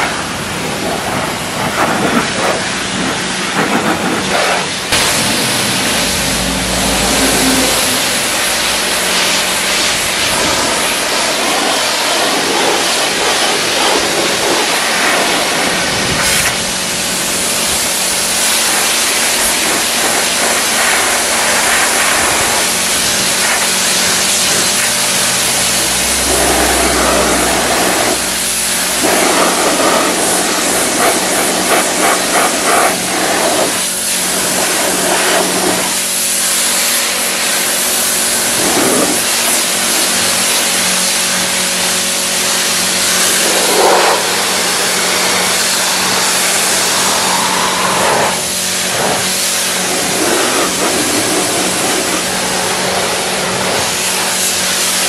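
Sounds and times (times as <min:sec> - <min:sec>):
pressure washer water jet hissing: 0:00.0 - 0:55.0
pump humming: 0:04.7 - 0:11.3, 0:16.5 - 0:31.7, 0:33.0 - 0:55.0.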